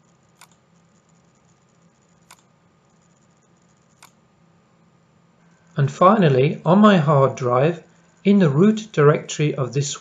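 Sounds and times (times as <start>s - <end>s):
computer mouse clicks: 0.0s - 4.2s.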